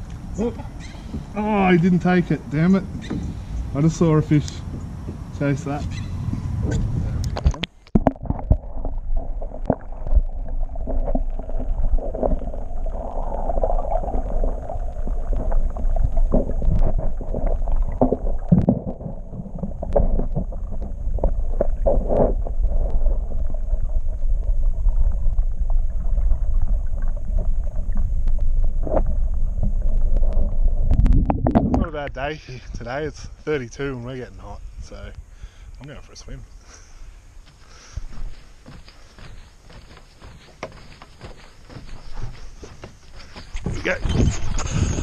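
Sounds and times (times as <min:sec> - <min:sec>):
underwater water rumble: 0:00.0 - 0:33.4.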